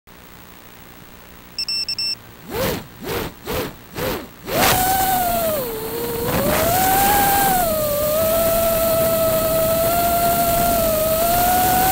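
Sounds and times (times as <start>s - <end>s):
high electronic beeps: 1.6s - 2.2s
drone motors whining: 2.4s - 11.9s.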